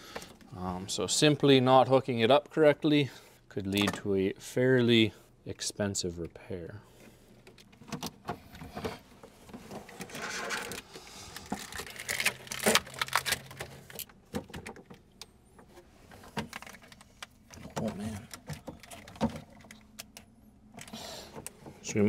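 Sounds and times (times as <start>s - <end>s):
cables and plastic loom rustling: 7.4s - 15.0s, 15.6s - 20.2s.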